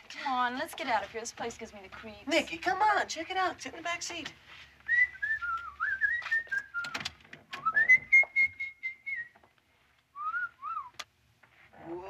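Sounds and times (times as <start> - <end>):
person whistling a tune: 4.9 - 7.0, 7.6 - 9.4, 10.2 - 10.9.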